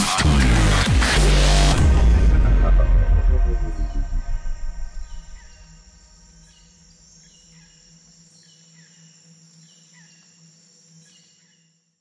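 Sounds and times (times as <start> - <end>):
insect-like chirps: 4.3 - 12.0.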